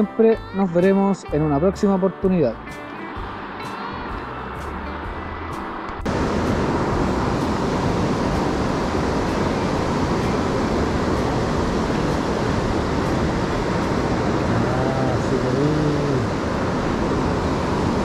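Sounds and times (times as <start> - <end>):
river rushing over rocks: 6.0 - 18.0.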